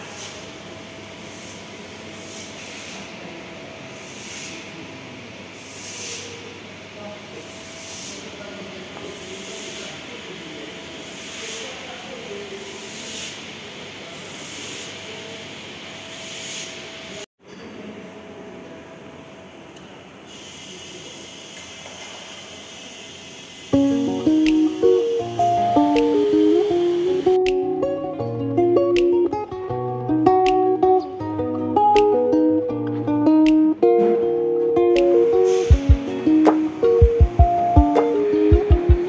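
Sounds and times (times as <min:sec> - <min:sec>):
short hissing bursts: 0:00.0 - 0:00.6, 0:01.2 - 0:03.1, 0:03.9 - 0:04.8, 0:05.6 - 0:06.5, 0:07.4 - 0:08.4, 0:09.1 - 0:15.5, 0:16.1 - 0:17.2, 0:20.3 - 0:27.4, 0:35.3 - 0:37.0.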